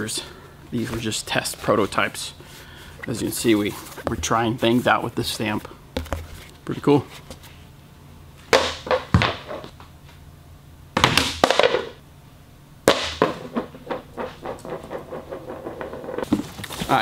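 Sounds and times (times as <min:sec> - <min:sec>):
plastic disc knocking on concrete: 0:12.9 - 0:16.4.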